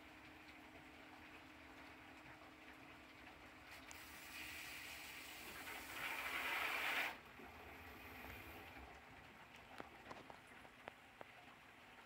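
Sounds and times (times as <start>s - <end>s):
water dripping: 0.0s - 4.4s.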